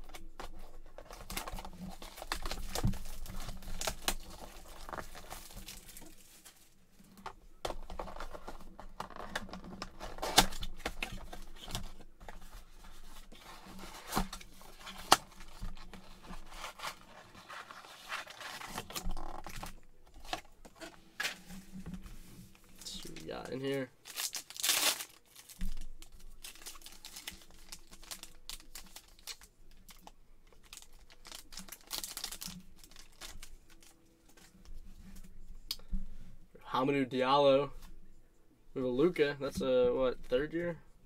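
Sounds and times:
plastic wrap tearing and crinkling: 0.0s - 6.7s, 8.0s - 12.0s, 13.2s - 20.5s, 22.5s - 34.0s.

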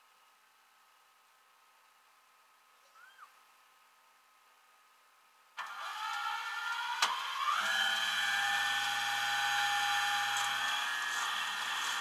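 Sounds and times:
hydraulic machinery running: 5.6s - 12.0s.

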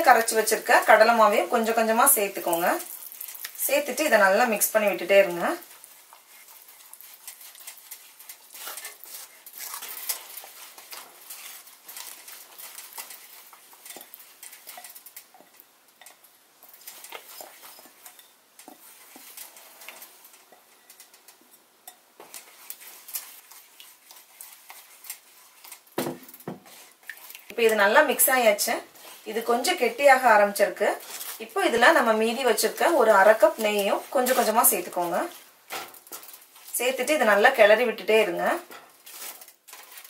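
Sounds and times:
plastic spatula scraping a pan: 4.5s - 15.6s.

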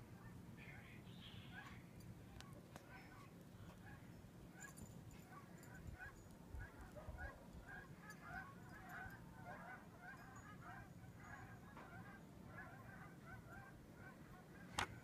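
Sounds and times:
flock of geese honking: 5.3s - 14.8s.

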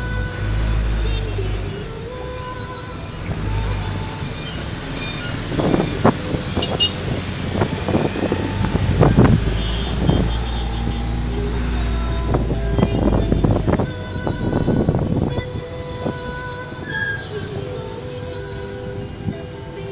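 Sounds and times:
vehicle engine and road rumble: 0.0s - 19.9s.

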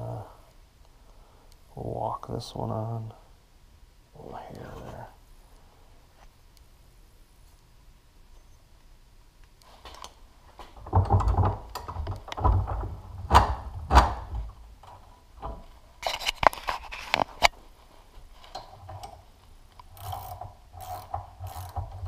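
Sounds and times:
metal parts thumping and rubbing: 9.8s - 17.5s.

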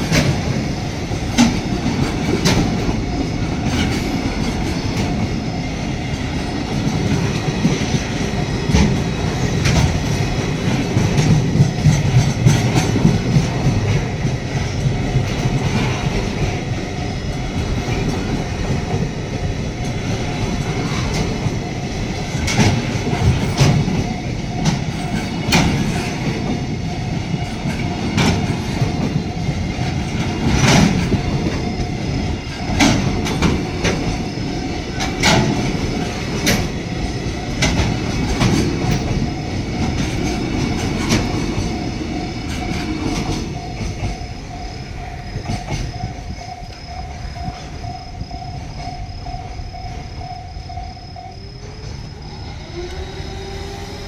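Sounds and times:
train wheels rumbling on rails: 0.0s - 54.0s
wheels clacking on rail joints: 0.0s - 54.0s
level crossing warning bell: 28.8s - 54.0s.

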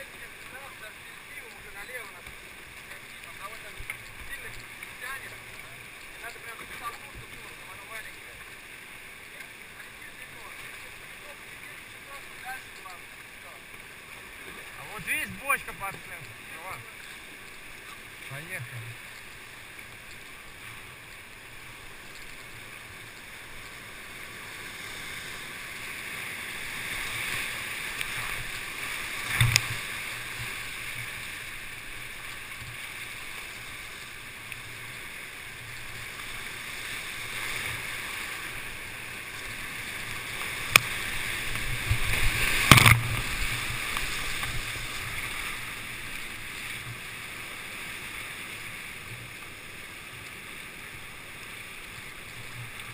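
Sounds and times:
rushing whitewater: 0.0s - 52.9s
sharp water slaps: 40.6s - 44.6s.

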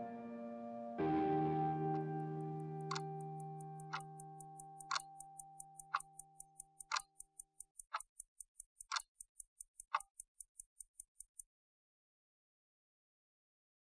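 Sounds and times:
held musical chord: 0.0s - 4.8s
clock ticking: 2.2s - 11.5s.

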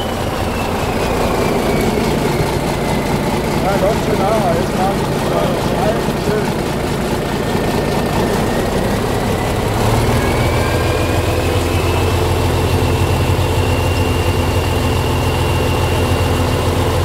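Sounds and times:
turbo whistle: 0.0s - 4.6s
diesel truck engine running: 0.0s - 17.0s.

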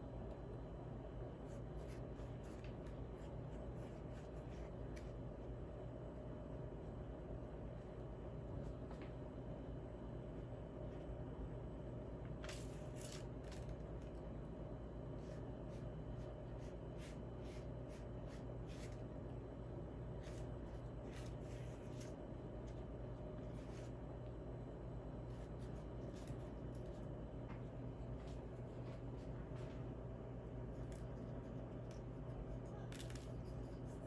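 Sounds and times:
steady low hum: 0.0s - 34.0s
soft scrapes and rustles: 20.2s - 22.2s, 23.4s - 24.0s.

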